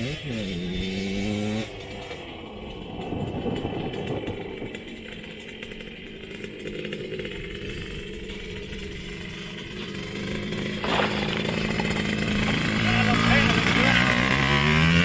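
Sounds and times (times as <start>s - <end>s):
two-stroke quad engine running: 0.0s - 15.0s.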